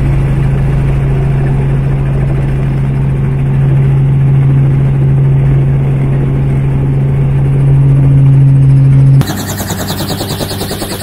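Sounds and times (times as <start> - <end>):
helicopter engine and rotor drone: 0.0 - 11.0.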